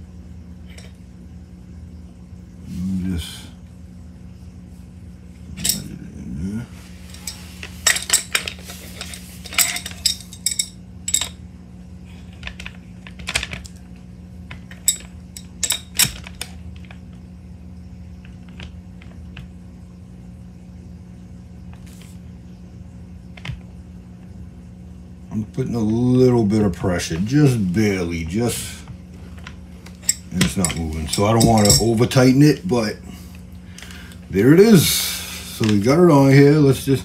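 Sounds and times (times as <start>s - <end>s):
low hum: 0.0s - 37.0s
metal wrench clinks and knocks: 7.1s - 11.4s, 14.8s - 16.1s, 30.0s - 32.2s.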